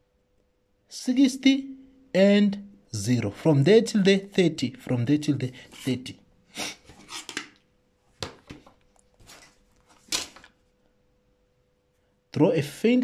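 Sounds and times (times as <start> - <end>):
plastic set square scraping paper: 6.9 - 7.5.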